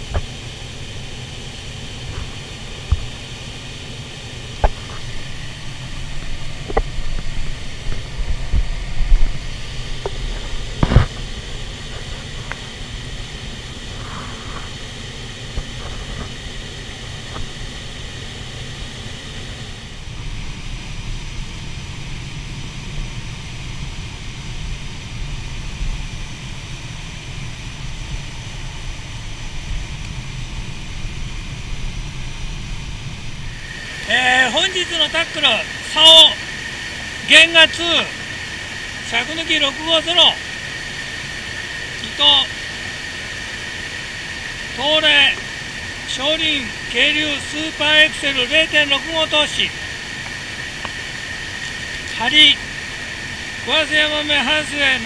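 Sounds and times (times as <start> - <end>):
river rushing: 0.0 - 20.8, 26.8 - 55.0.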